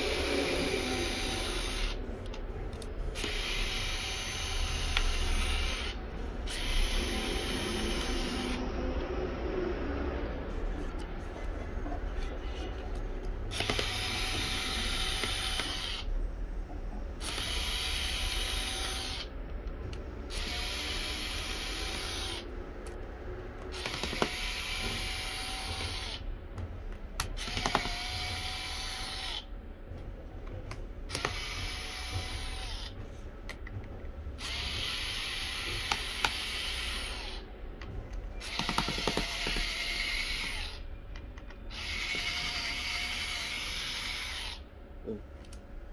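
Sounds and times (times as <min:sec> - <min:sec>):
electric screwdriver whining: 0:00.0 - 0:02.0, 0:03.2 - 0:08.6, 0:13.5 - 0:16.1, 0:17.2 - 0:19.3, 0:20.3 - 0:22.4, 0:23.7 - 0:26.2, 0:27.3 - 0:29.5, 0:31.1 - 0:32.9, 0:34.4 - 0:37.4, 0:38.4 - 0:40.8, 0:41.7 - 0:44.6.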